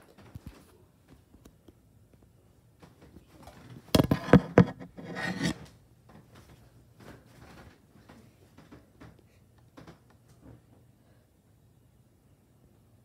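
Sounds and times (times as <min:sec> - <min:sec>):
rubbing scrape on phone: 0:04.0 - 0:05.7.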